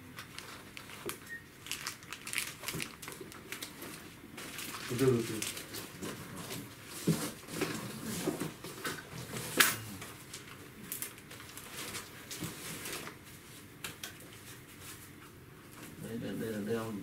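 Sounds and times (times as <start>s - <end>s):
packaging rustling: 0.2s - 9.5s, 10.3s - 13.2s.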